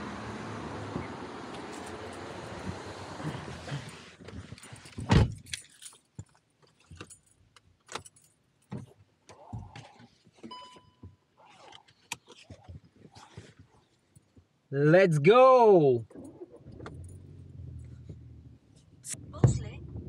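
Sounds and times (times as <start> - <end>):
outside traffic noise: 0.0 - 20.0
keys jangling: 4.6 - 8.4
car electronic chime: 10.5 - 11.1.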